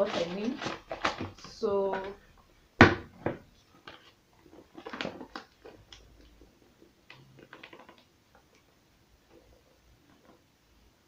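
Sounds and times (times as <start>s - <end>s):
flour bag rustling: 0.0s - 2.2s.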